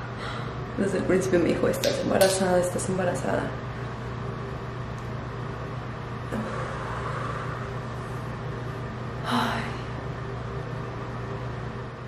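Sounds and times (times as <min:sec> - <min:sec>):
ventilation fan hum and hiss: 0:00.0 - 0:12.0
person breathing: 0:00.2 - 0:00.6.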